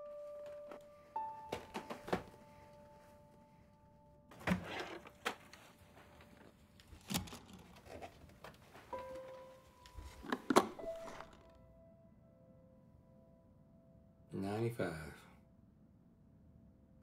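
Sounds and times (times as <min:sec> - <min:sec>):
soft piano notes: 0:00.0 - 0:04.3, 0:08.6 - 0:14.9
plastic cases clacking: 0:10.0 - 0:11.5.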